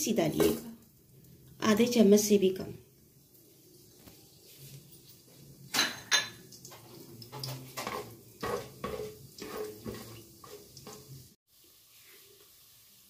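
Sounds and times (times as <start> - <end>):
spatula scraping pot: 6.7 - 11.4
spatula knocking on pot: 7.8 - 11.0.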